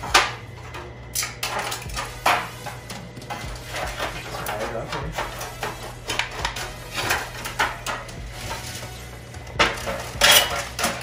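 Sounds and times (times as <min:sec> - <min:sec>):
aluminum pan crinkling: 0:00.0 - 0:11.0.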